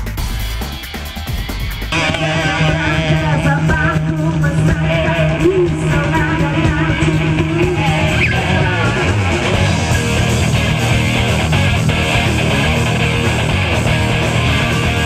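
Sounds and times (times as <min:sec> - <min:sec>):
drums keeping a steady beat: 0:00.0 - 0:15.0
electric guitar: 0:00.0 - 0:15.0
woman singing into a microphone: 0:02.2 - 0:09.1.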